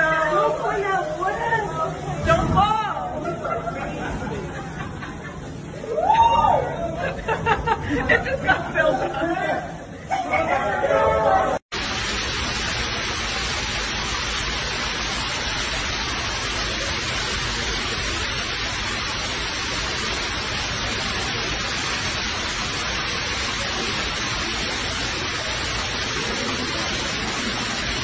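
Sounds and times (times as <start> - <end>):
floodwater rushing down stairs: 11.7 - 28.0.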